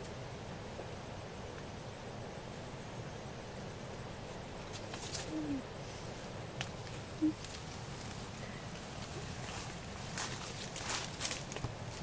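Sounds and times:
low hooting bird call: 0:05.3 - 0:05.7, 0:07.2 - 0:07.4.

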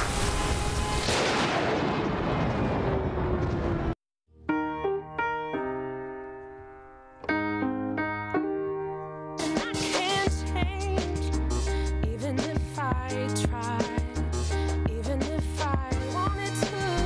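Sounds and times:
stormy wind: 0:00.0 - 0:04.0
electric piano chord: 0:04.5 - 0:09.6.

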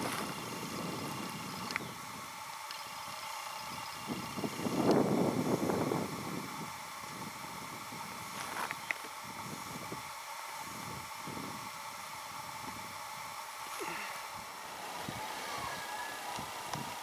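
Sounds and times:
wind rumbling on microphone: 0:00.0 - 0:02.4, 0:03.7 - 0:13.0, 0:14.3 - 0:17.0
steady hiss: 0:00.0 - 0:17.0
small clicks: 0:01.5 - 0:01.9, 0:08.5 - 0:09.2.

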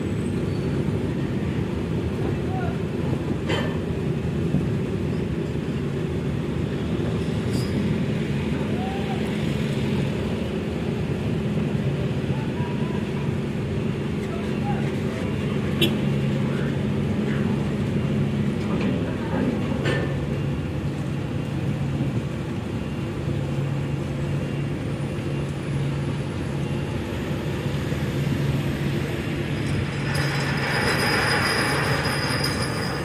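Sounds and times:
ship engines droning: 0:00.0 - 0:33.0
rushing noise: 0:25.8 - 0:33.0.

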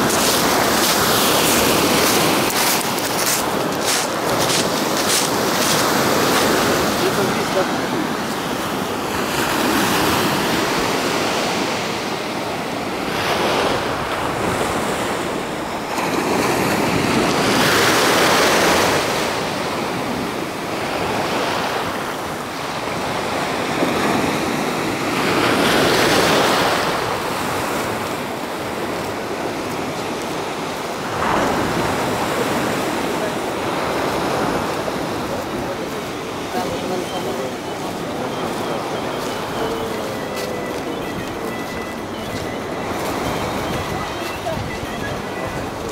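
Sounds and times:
surf breaking and washing in: 0:00.0 - 0:41.0
wind buffeting microphone: 0:40.7 - 0:45.9.

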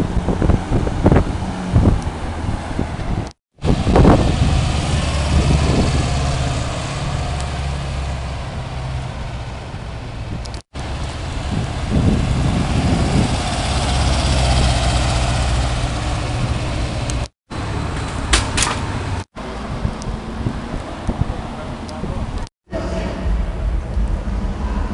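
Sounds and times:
car engine low revs: 0:00.0 - 0:09.7.

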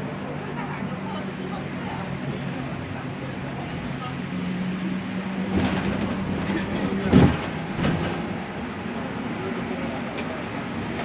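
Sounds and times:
bus engine drone: 0:00.0 - 0:11.0
knocks: 0:05.5 - 0:08.3
rattles: 0:05.5 - 0:08.4.

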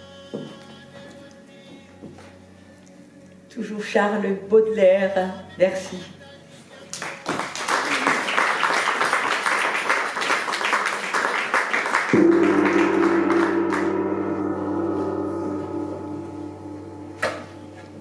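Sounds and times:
audience applauding: 0:06.9 - 0:13.8
gong struck and ringing: 0:12.1 - 0:18.0.

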